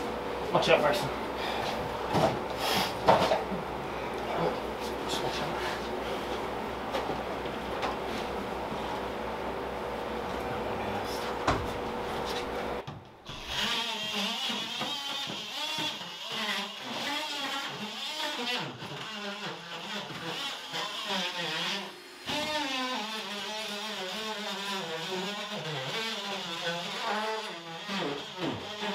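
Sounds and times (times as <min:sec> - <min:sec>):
mechanical hum: 0:00.0 - 0:28.9.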